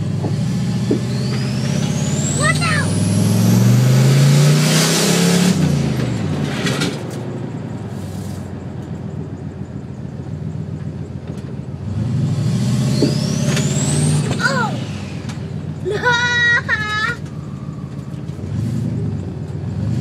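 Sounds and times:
car engine accelerating: 0.0 - 8.4, 9.6 - 20.0.

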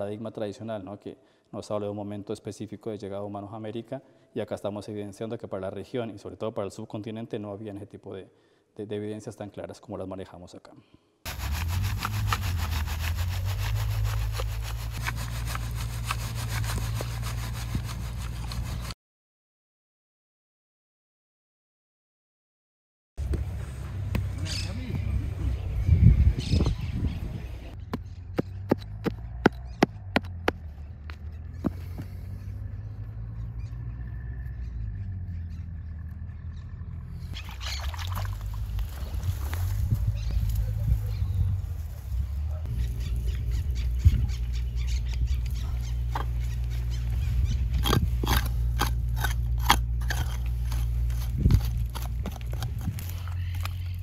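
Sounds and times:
soil rasping over sieve mesh: 11.3 - 19.0, 47.8 - 54.0
low outdoor rumble: 23.2 - 37.4
dry plant stems crackling: 37.6 - 41.2, 45.1 - 54.0
grit clicks: 47.8 - 54.0.

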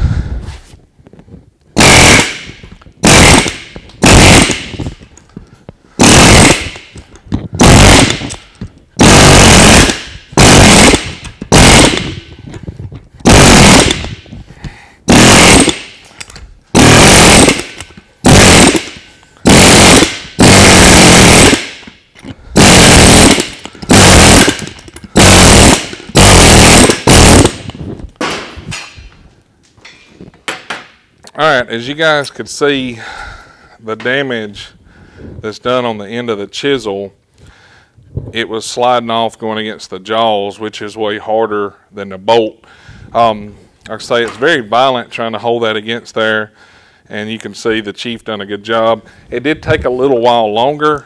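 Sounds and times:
pneumatic air hammer bursts: 7.6 - 12.2, 15.1 - 16.1, 16.8 - 27.8.

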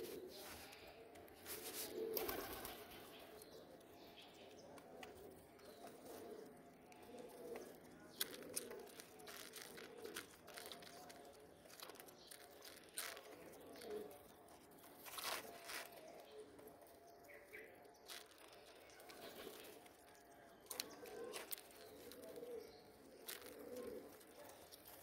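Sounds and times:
pigeons cooing: 0.0 - 25.0
beaks pecking in plastic bowl: 5.1 - 16.1, 18.0 - 25.0.

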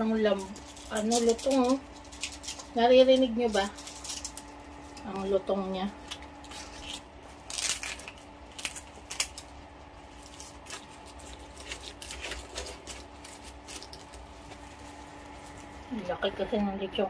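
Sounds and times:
faint steady hum: 0.0 - 17.0
scissors snipping crispy pork skin: 0.2 - 5.3, 6.0 - 9.5, 10.2 - 14.2.

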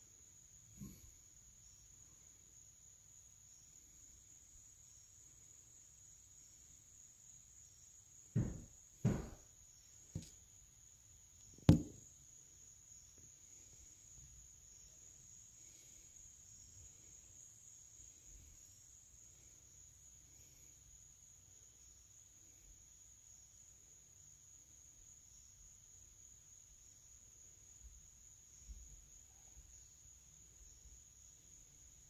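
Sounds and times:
crickets chirring: 0.0 - 32.0
sharp knocks: 8.3 - 9.5, 11.6 - 12.0.

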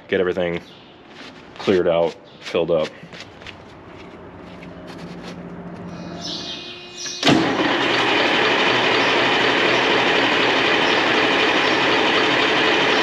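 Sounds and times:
diesel truck engine starting and running: 4.2 - 13.0.

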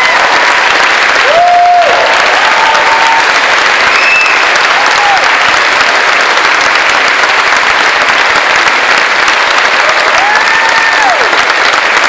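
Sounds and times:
audience applauding: 0.0 - 12.0
falling whoop: 1.2 - 3.3, 10.2 - 11.3.

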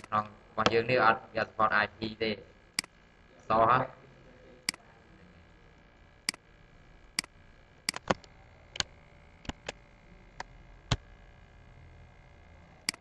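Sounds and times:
faint room hum: 0.0 - 13.0
computer mouse clicks: 7.2 - 9.8.

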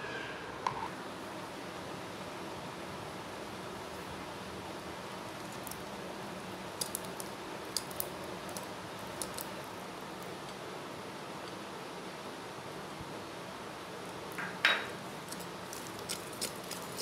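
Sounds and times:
whisk beating butter: 15.3 - 17.0.

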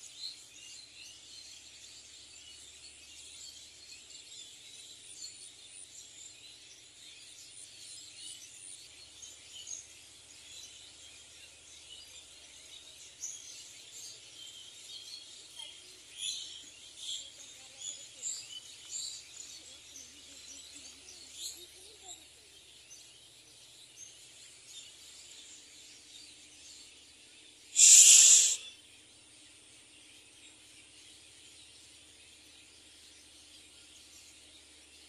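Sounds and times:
small birds chirping: 0.0 - 35.0
steady high hiss: 27.7 - 28.7
loud burst of noise: 27.8 - 28.6.

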